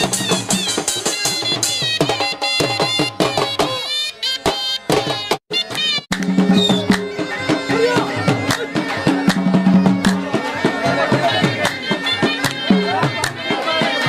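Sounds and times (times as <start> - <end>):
folk music with drum beat: 0.0 - 14.0.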